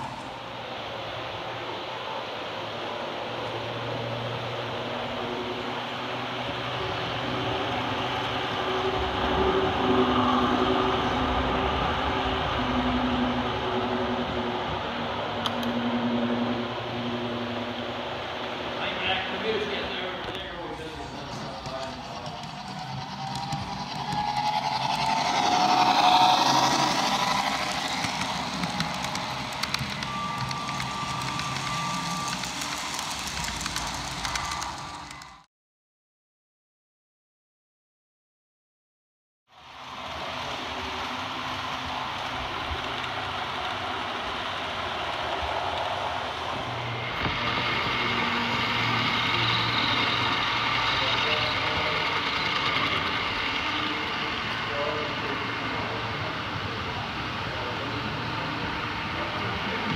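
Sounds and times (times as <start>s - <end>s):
model train rumbling and whining: 0.0s - 35.4s, 39.5s - 59.9s
wheels clicking over rail joints: 20.9s - 35.4s.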